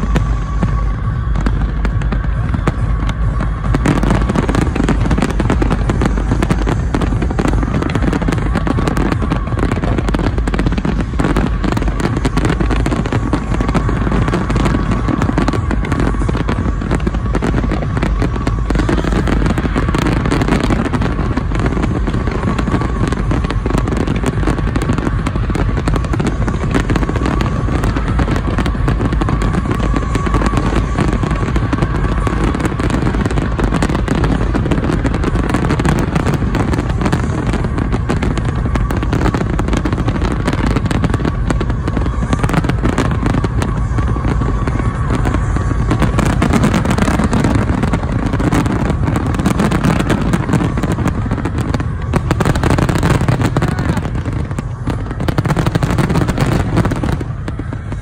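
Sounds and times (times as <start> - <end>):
fireworks bursts and crackle: 0.0 - 58.0.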